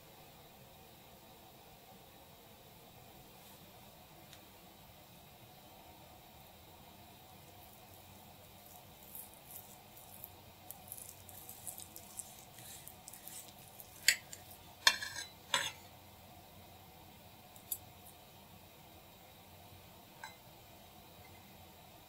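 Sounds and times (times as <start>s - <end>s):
cutlery scraping a dish: 12.2s - 15.9s, 20.2s - 20.4s.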